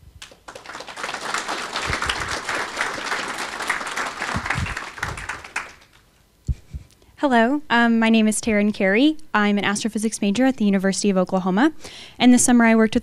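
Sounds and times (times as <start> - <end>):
audience applauding: 0.2 - 6.1.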